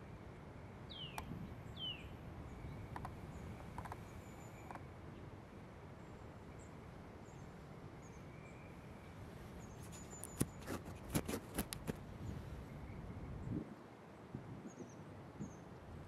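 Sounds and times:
small birds chirping: 0.9s - 5.2s, 6.6s - 13.6s.

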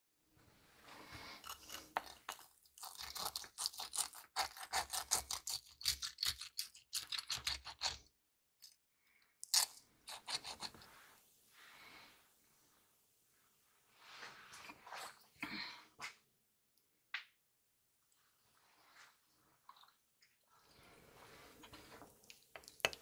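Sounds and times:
fried breading crunching: 1.4s - 8.0s.

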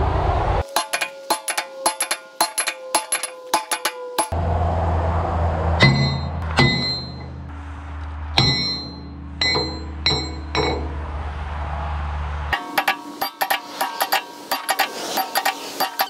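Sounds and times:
sledgehammer clanging on steel: 0.8s - 4.3s, 5.8s - 7.4s, 8.4s - 11.0s, 12.6s - 16.0s
low engine hum: 4.3s - 12.6s.

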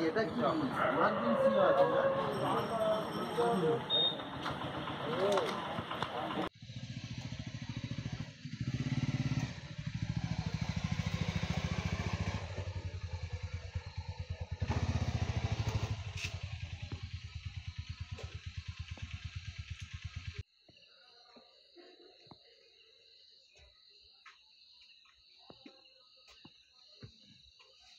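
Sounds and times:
small motorcycle engine: 2.6s - 20.4s.

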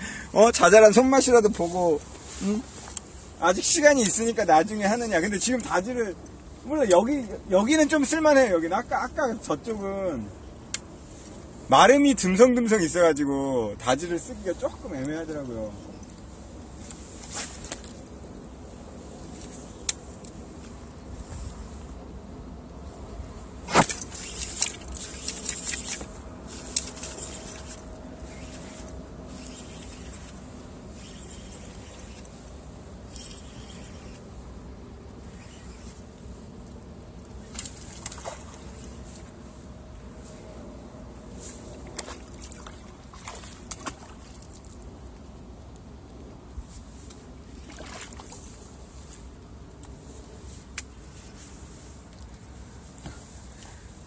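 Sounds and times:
water at rocky shore: 0.0s - 21.7s, 23.4s - 34.3s, 35.2s - 39.4s, 41.3s - 50.7s
sharp snap: 23.7s - 26.1s
fishing reel and line clicking: 23.7s - 32.4s, 33.0s - 34.3s, 35.2s - 36.0s
water splash: 42.0s - 44.4s, 47.6s - 48.4s.

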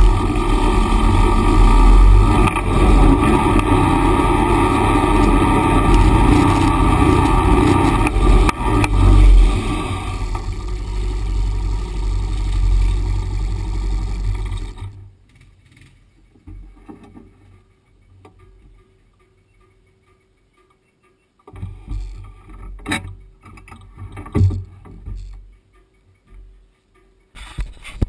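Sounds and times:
vehicle engine running: 0.0s - 16.8s.

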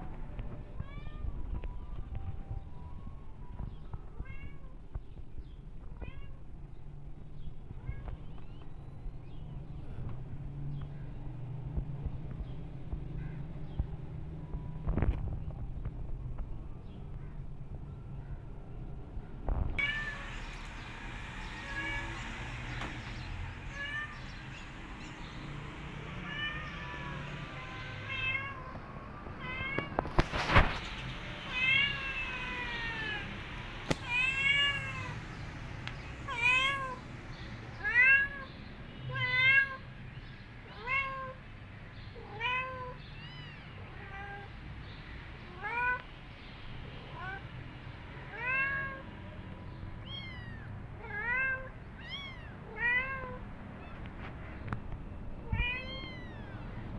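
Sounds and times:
kittens meowing: 19.8s - 25.2s, 26.1s - 30.2s, 31.5s - 35.2s, 50.0s - 54.2s, 55.4s - 56.9s.

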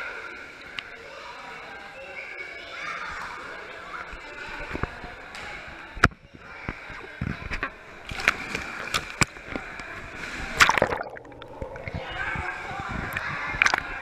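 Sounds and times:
pool water splashing: 7.7s - 14.0s.

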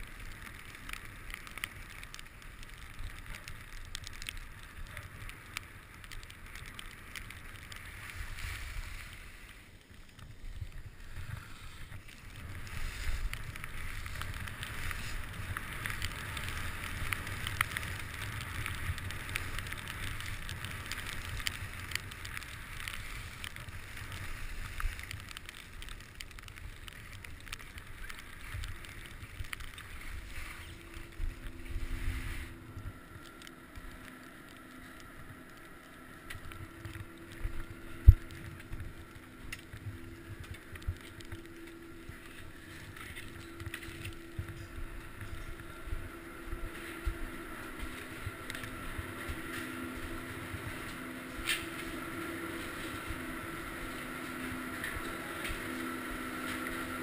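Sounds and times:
skis scraping over snow: 0.0s - 57.0s.

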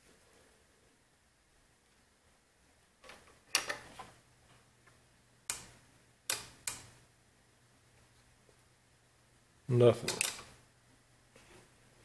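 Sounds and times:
faint low hum: 0.0s - 12.0s
wire leads clicking on terminals: 3.0s - 4.0s, 5.4s - 7.0s, 10.0s - 10.6s.

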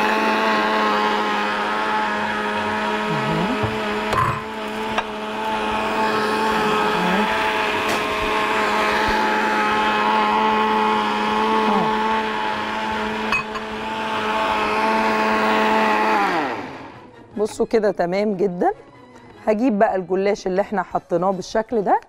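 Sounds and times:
blender running: 0.0s - 17.1s.

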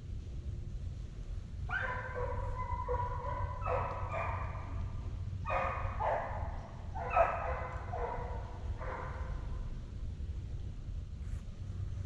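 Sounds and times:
hounds baying: 1.7s - 9.5s.

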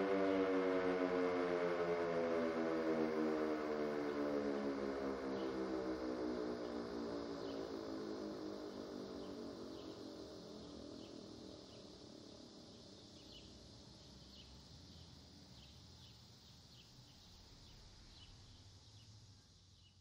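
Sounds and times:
warning siren wind-down tone: 0.0s - 11.0s.

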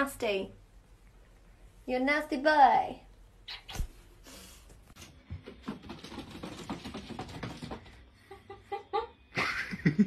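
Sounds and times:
person laughing: 8.3s - 10.0s.

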